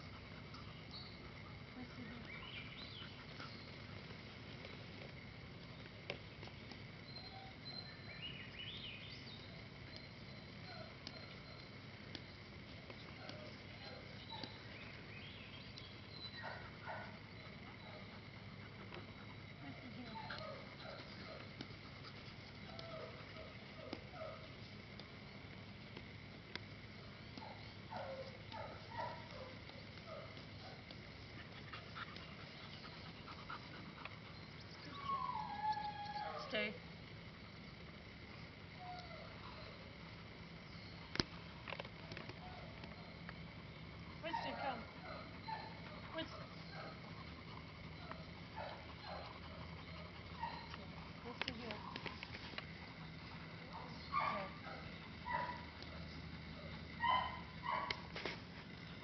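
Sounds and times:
puppy whimpering: 47.9s - 52.0s.

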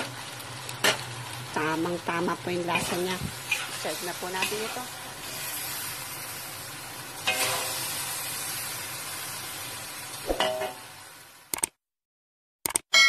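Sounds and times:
food sizzling in wok: 0.0s - 11.5s
spatula clanking on wok: 7.2s - 7.8s.

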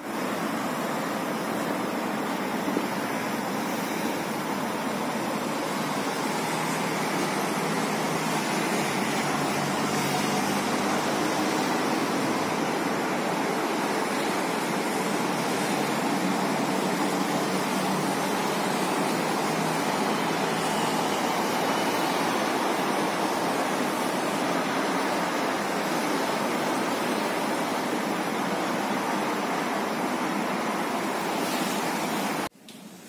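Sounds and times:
distant highway traffic rush: 0.0s - 32.5s.

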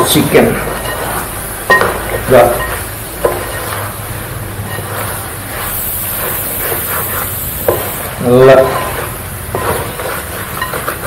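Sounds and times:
curry sizzling in a pot: 0.0s - 11.0s
spoon stirring and scraping: 0.0s - 11.0s
spoon clinking against pot: 1.7s - 3.6s.

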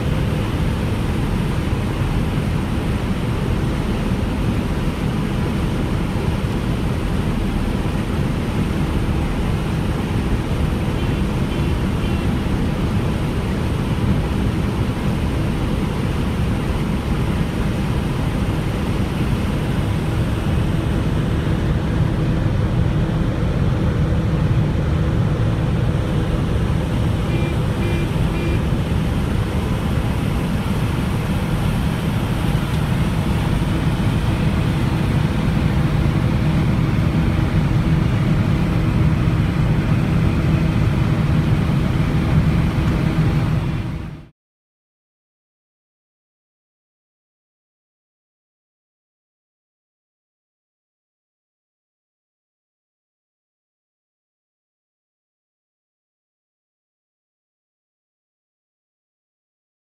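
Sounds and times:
heavy machinery engine running: 0.0s - 44.3s.

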